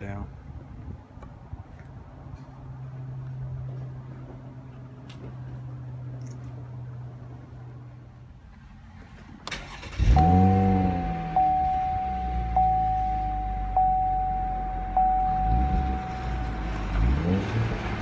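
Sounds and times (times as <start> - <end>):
car engine starting and idling: 8.6 - 18.0
engine revving: 9.7 - 18.0
warning chime: 10.1 - 17.3.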